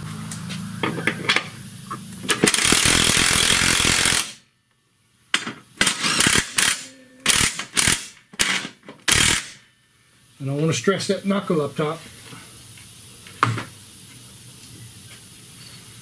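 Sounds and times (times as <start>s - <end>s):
impact wrench hammering bolts: 2.2s - 4.4s, 5.4s - 9.6s.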